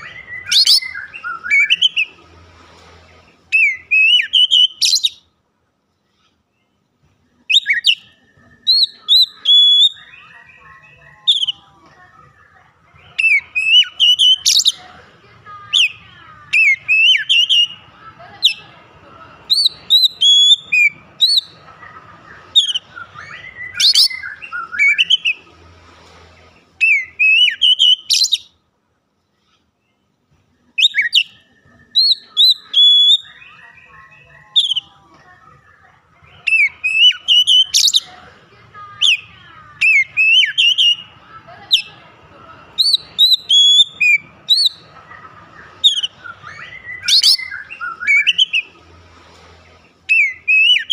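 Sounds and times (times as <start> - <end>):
bird song with sharp whistles: 0.0 - 2.1, 22.5 - 25.4, 26.8 - 28.5, 45.8 - 48.7, 50.1 - 50.9.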